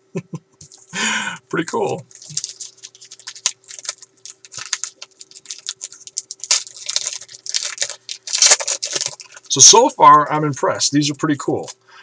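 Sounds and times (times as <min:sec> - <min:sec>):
trading cards being shuffled: 0:01.8 - 0:09.6.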